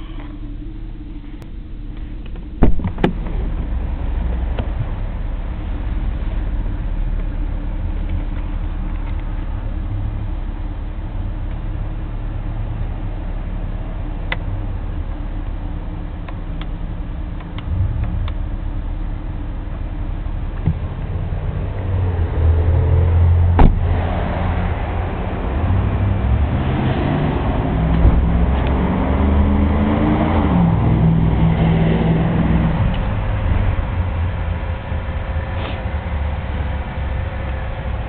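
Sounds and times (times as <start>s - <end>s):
car engine droning: 0.0s - 38.0s
sharp thump: 2.6s - 3.5s, 23.5s - 24.0s, 28.0s - 28.3s.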